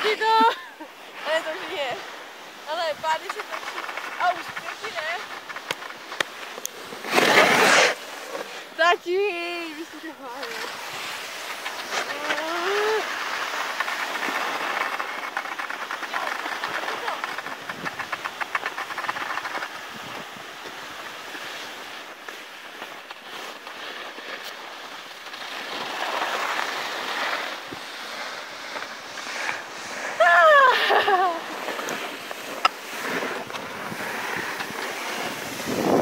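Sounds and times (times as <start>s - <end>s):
skis scraping over snow: 0.0s - 36.0s.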